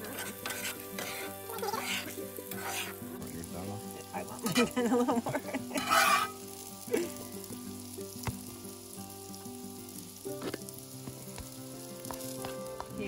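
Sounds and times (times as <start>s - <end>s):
metal spatula scraping skillet: 0.0s - 3.3s, 5.6s - 6.5s
food sizzling on griddle: 0.0s - 13.0s.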